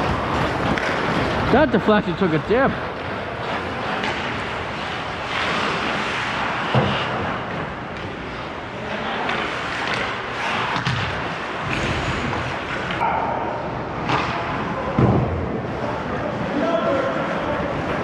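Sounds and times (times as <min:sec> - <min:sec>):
hockey sticks and puck knocking: 0:00.0 - 0:01.6, 0:09.2 - 0:13.0
skate blades scraping ice: 0:00.0 - 0:13.0.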